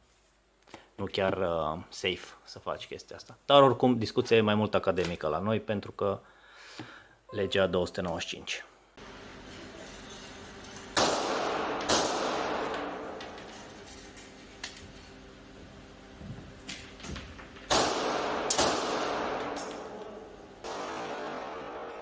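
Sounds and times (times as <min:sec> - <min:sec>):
pistol shots echoing: 0:11.0 - 0:13.2, 0:17.7 - 0:22.0.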